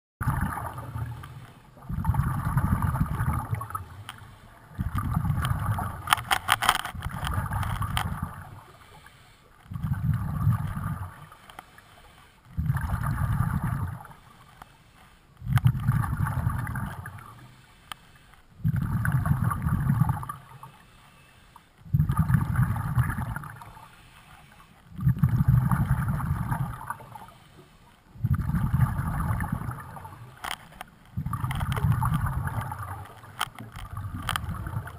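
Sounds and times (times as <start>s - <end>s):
underwater breath bubbles: 0.2s - 6.2s, 6.9s - 30.4s, 31.2s - 34.9s
clicks: 5.4s - 8.2s.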